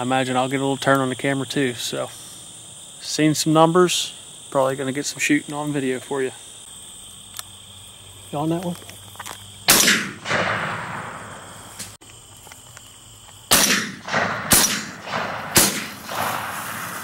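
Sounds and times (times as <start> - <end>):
crickets chirping: 0.0 - 17.0
shotgun shots echoing: 9.7 - 11.7, 13.5 - 17.0.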